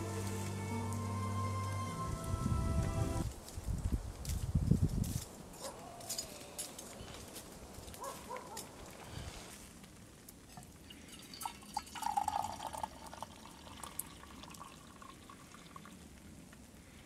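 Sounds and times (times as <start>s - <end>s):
tea pouring into a metal mug: 10.6s - 16.0s.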